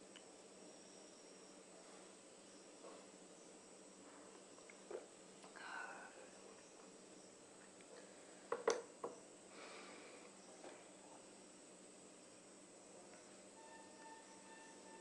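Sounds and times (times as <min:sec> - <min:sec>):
faint breath out: 0:05.5 - 0:06.3, 0:09.5 - 0:10.4
glass knocking on wooden table: 0:08.5 - 0:09.2.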